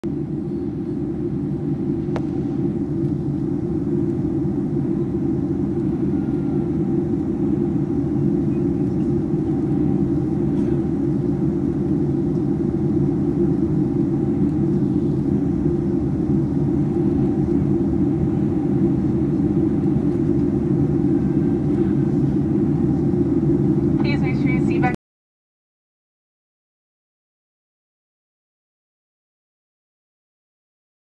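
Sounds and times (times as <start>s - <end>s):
airplane cabin engine rumble: 0.0s - 25.0s
faint steady tone: 5.0s - 10.5s.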